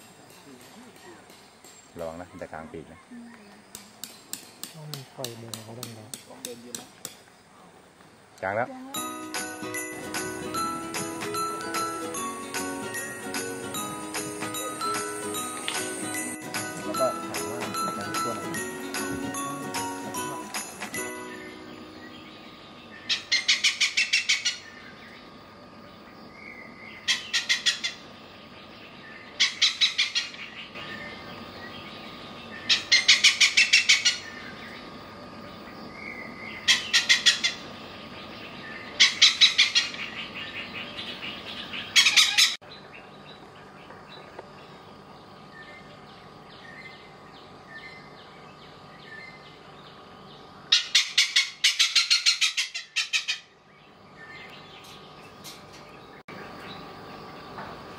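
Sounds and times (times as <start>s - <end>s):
hornbill cackling calls: 23.0s - 24.9s, 27.0s - 28.1s, 29.3s - 31.3s, 32.5s - 34.5s, 36.5s - 37.7s, 38.8s - 42.6s, 50.7s - 53.5s.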